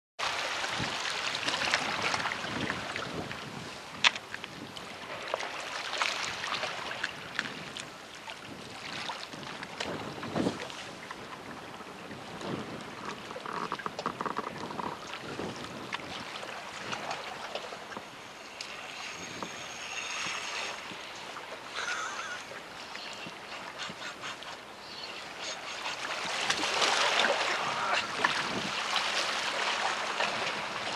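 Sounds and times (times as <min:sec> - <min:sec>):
small waves lapping on rocks: 0:00.2 - 0:11.0, 0:12.2 - 0:30.9
wind buffeting microphone: 0:00.6 - 0:05.2, 0:06.2 - 0:18.1, 0:19.0 - 0:21.1, 0:25.8 - 0:29.0.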